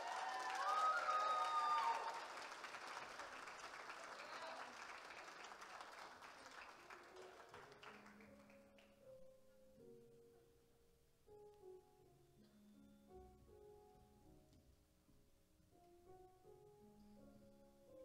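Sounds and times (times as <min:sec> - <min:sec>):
audience applause: 0:00.0 - 0:08.8
soft music with held notes: 0:06.8 - 0:18.0.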